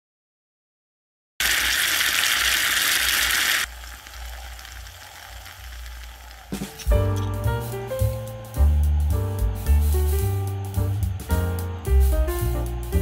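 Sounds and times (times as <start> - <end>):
oil sizzling in a pot: 1.4 - 8.8.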